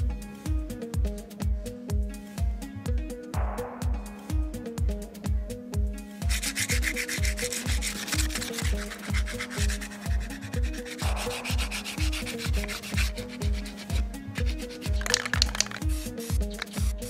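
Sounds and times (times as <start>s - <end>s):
background music with steady beat: 0.0s - 17.0s
sandpaper rubbing on wood: 6.3s - 17.0s.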